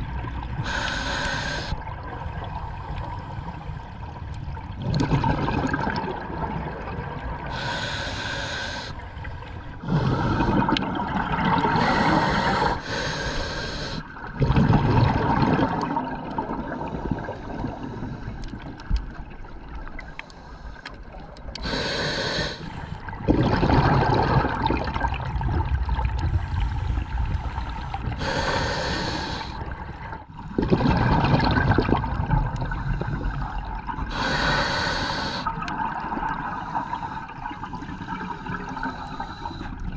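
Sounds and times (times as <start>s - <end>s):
regulator inhale hiss: 0.6s - 1.8s, 7.5s - 9.0s, 11.8s - 14.1s, 21.6s - 23.0s, 26.7s - 29.6s, 34.1s - 35.6s, 38.7s - 39.8s
burble of exhaled bubbles: 3.8s - 7.6s, 9.4s - 12.6s, 14.1s - 20.0s, 23.0s - 28.3s, 29.4s - 34.2s.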